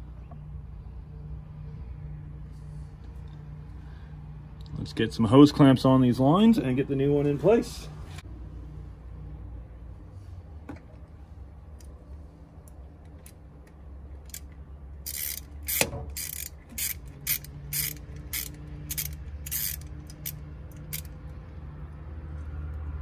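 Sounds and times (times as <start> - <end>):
socket ratchet clicking: 14.2 - 21.3.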